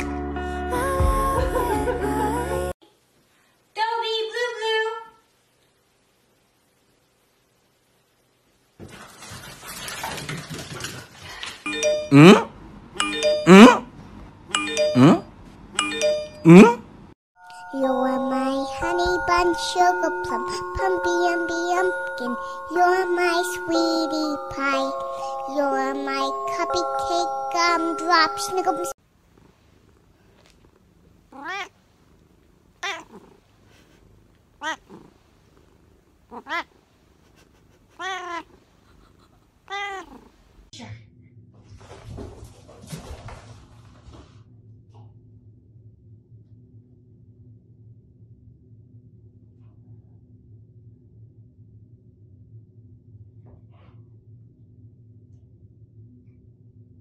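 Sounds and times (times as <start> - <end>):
ding-dong doorbell chime: 11.7 - 12.3, 13.0 - 13.6, 14.5 - 15.2, 15.8 - 16.5, 17.4 - 28.9
cat meowing: 31.3 - 31.8, 32.8 - 33.3, 34.6 - 35.0, 36.3 - 36.7, 37.9 - 38.6, 39.7 - 40.3.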